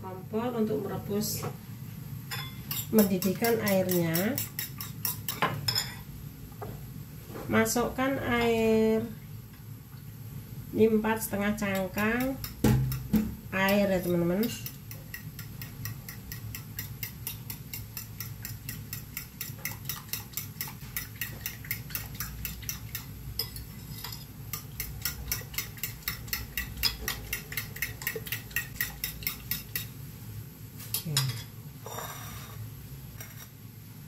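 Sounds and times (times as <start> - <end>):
fork beating eggs in bowl: 2.4 - 6.0, 11.6 - 29.9
knock on bowl: 12.6 - 13.4.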